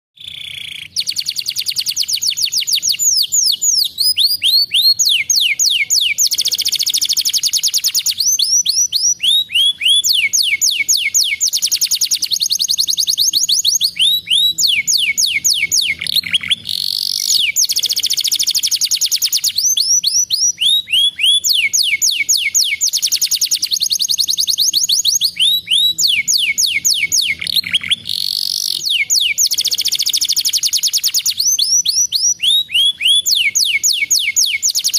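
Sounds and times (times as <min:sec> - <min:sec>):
canary singing trills: 0:00.2 - 0:34.9.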